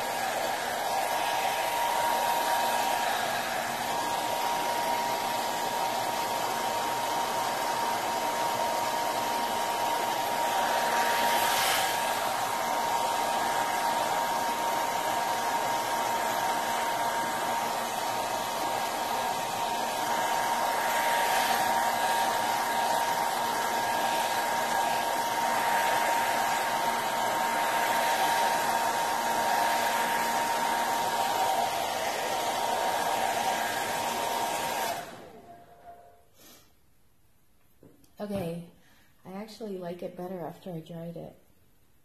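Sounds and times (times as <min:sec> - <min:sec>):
hair dryer running: 0:00.0 - 0:36.5.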